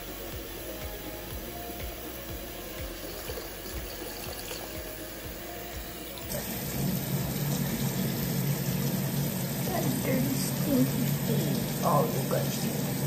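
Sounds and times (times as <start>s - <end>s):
tap water pouring and splashing: 2.8s - 5.4s, 6.2s - 13.0s.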